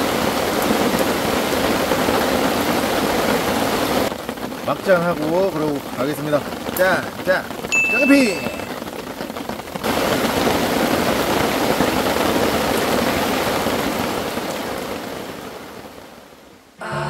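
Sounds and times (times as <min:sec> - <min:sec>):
heavy rain pouring: 0:00.0 - 0:17.0.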